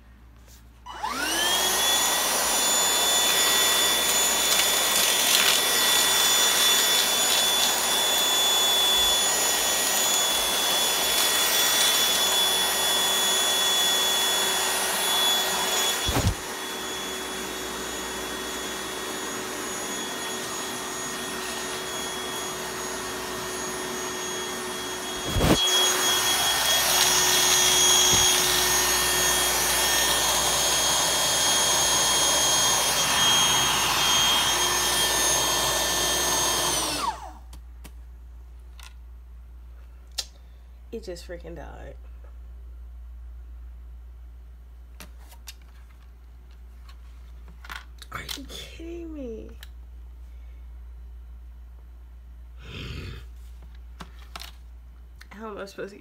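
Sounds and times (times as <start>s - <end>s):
vacuum motor whining: 0.9s - 37.5s.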